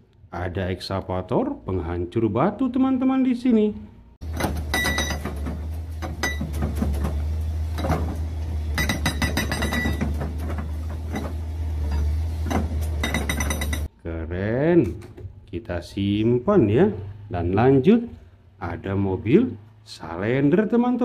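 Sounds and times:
diesel engine drone: 4.0 - 14.3
hydraulic breaker hammering stone: 4.2 - 13.9.

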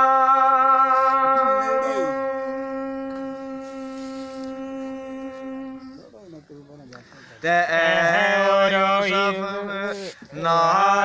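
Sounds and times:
man singing a long note: 0.0 - 6.1, 7.4 - 11.0.

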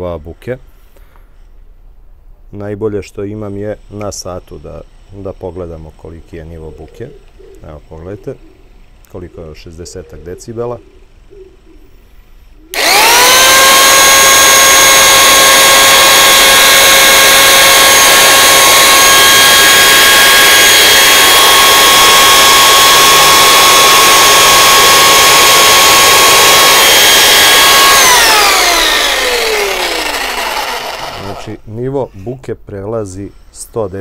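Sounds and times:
jigsaw running with high whine: 12.7 - 31.6.

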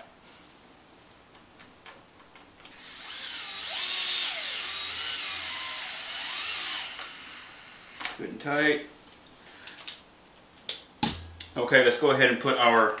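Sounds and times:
electric screwdriver motor whine: 2.7 - 8.2.

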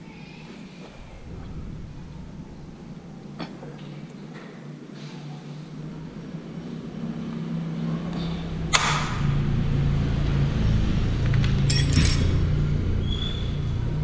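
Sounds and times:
low engine-like hum: 0.0 - 14.0.

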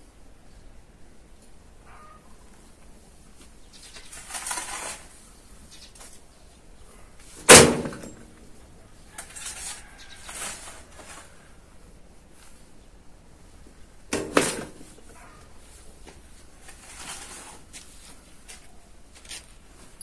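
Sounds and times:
short scraping sounds: 3.8 - 5.3, 9.1 - 11.6, 16.6 - 18.2.

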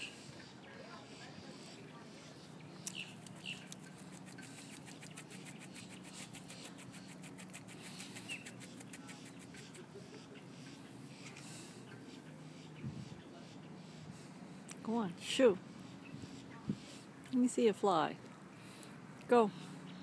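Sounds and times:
bird preening feathers: 3.2 - 10.3.

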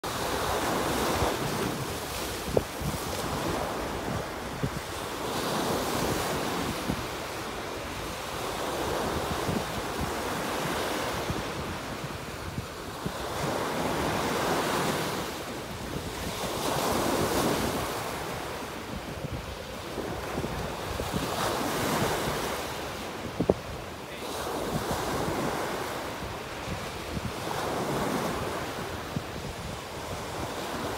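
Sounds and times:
ocean waves breaking on rocks: 0.0 - 30.9
wind buffeting microphone: 0.1 - 30.9.

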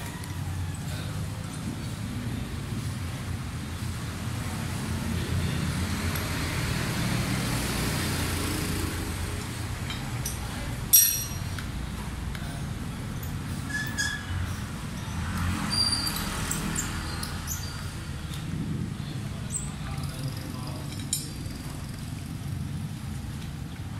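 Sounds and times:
low traffic rumble: 0.0 - 23.9
tools clinking on metal disc: 9.9 - 11.6.

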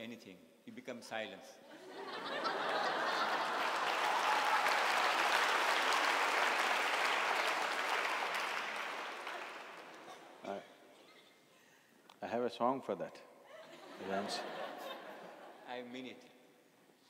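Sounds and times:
audience applauding: 2.2 - 10.4.

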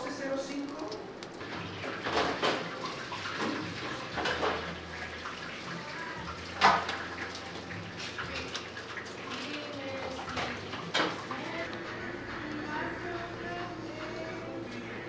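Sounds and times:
cookware clattering: 1.9 - 4.8.

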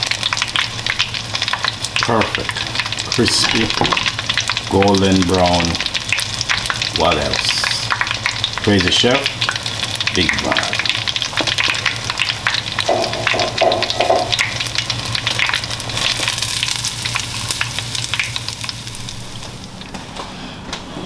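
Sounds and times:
chicken frying in oil: 0.0 - 19.9.

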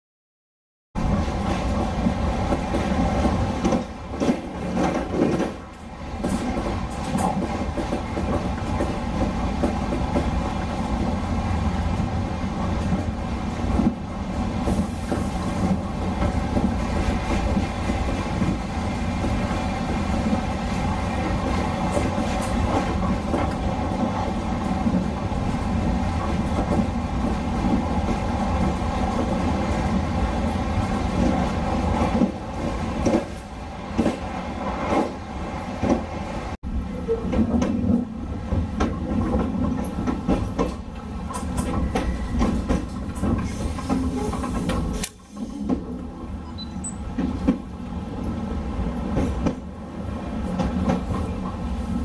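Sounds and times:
train rumble and hum: 1.0 - 52.0
train wheels clicking on rail joints: 2.5 - 11.1, 21.2 - 25.6, 37.1 - 51.8.

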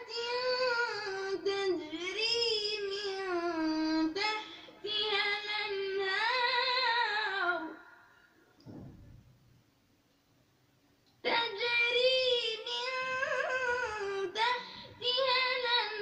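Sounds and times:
child reciting in melodic chant: 11.3 - 16.0.

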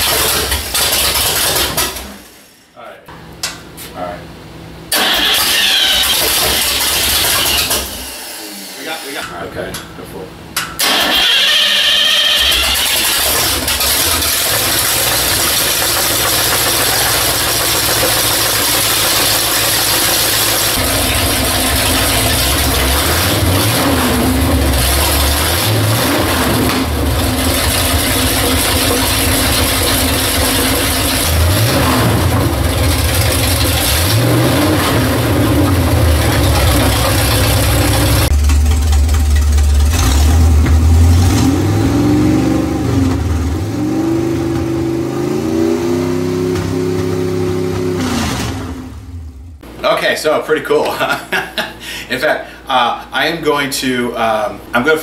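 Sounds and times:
engine revving through open exhaust: 12.4 - 49.3.

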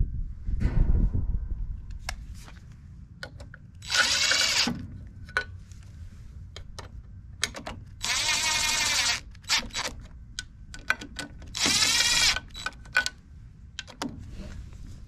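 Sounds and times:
cordless driver whirring: 3.8 - 4.8, 8.0 - 10.1, 11.4 - 12.9.

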